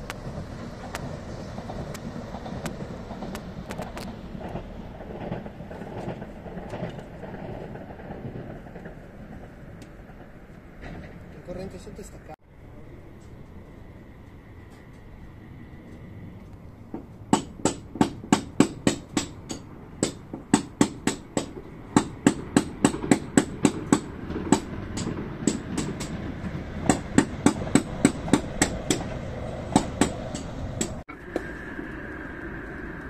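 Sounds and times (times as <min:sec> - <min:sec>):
passing train noise: 0:00.0 - 0:33.0
sharp knocks: 0:17.0 - 0:26.2, 0:26.8 - 0:31.0.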